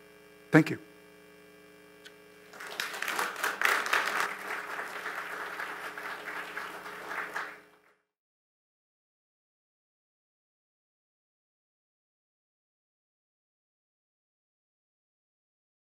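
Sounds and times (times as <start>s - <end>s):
audience applauding: 2.5s - 8.0s.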